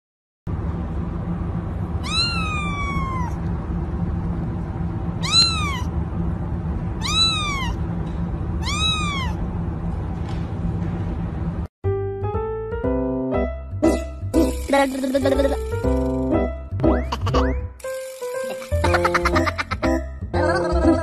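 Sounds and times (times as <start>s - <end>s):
kitten meowing: 2.0s - 3.4s, 5.2s - 5.9s, 7.0s - 7.8s, 8.6s - 9.4s.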